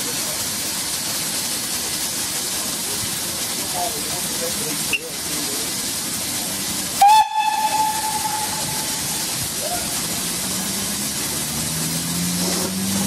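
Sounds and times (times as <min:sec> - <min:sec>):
steam hissing: 0:00.0 - 0:13.0
steam whistle blast: 0:07.0 - 0:10.0.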